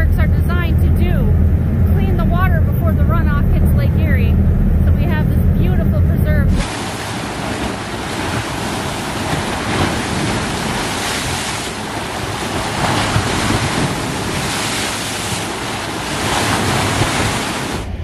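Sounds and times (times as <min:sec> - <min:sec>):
waves splashing against rocks: 0:06.6 - 0:18.0.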